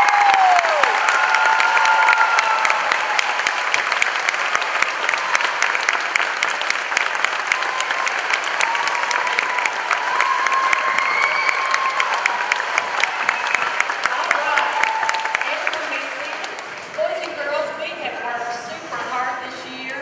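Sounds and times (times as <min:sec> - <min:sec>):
audience applauding: 0:00.0 - 0:17.4.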